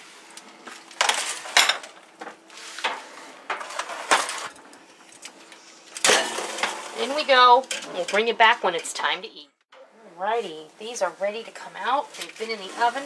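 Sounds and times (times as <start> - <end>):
metal baking sheet clanking: 6.0 - 9.2.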